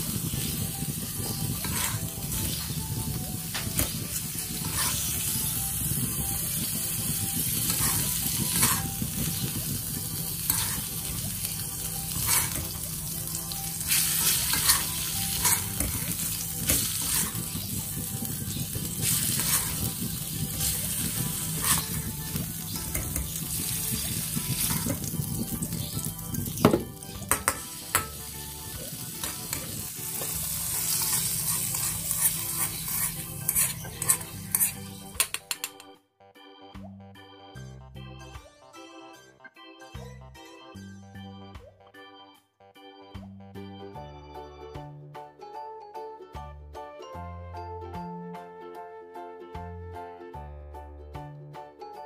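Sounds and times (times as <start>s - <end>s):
oil sizzling in a wok: 0.0s - 35.3s
metal spoon scraping a pan: 1.2s - 2.8s, 3.6s - 5.5s, 7.3s - 9.4s, 10.0s - 11.2s, 12.0s - 12.9s, 13.8s - 17.9s, 18.9s - 26.0s, 27.3s - 35.8s.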